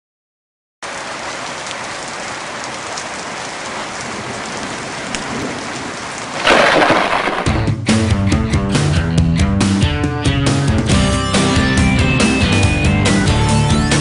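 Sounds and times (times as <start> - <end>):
rain-like hiss: 0.8 - 7.6
loud rush: 6.4 - 7.8.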